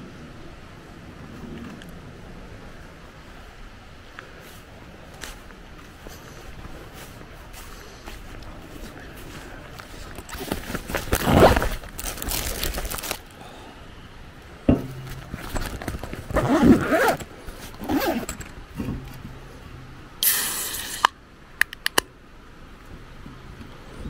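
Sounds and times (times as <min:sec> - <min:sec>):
nylon backpack rustling: 0:05.8 - 0:13.3, 0:15.0 - 0:19.3
zipper pulled open: 0:11.0 - 0:13.1, 0:15.4 - 0:18.5.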